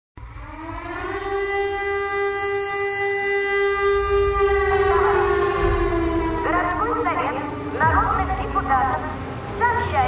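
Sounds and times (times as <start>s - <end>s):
low rumble: 3.8s - 10.0s.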